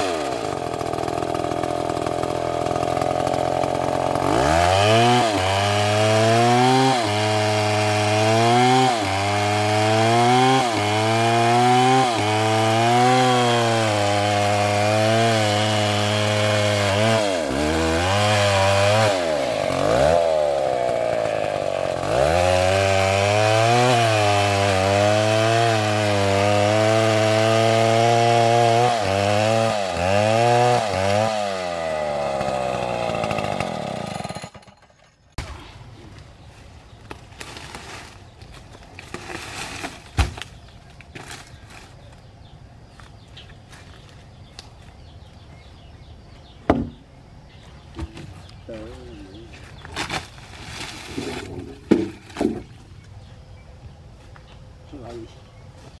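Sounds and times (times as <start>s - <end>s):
chainsaw cutting log: 0.0s - 35.6s, 50.0s - 52.8s.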